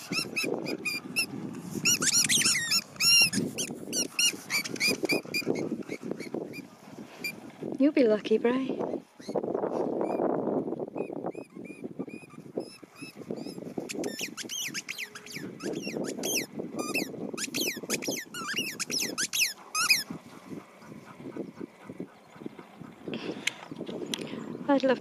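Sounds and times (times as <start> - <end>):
squeaky ball squeaking: 0.0 - 6.6, 11.0 - 20.0.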